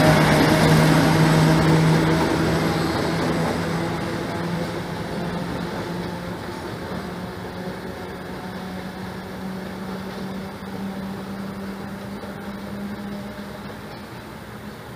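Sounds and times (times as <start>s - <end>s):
diesel train engine drone: 0.0s - 14.9s.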